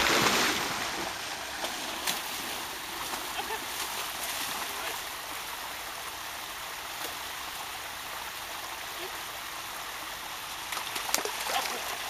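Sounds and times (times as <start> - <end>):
waterfall and stream running: 0.0 - 12.0
dog splashing through water: 10.6 - 12.0.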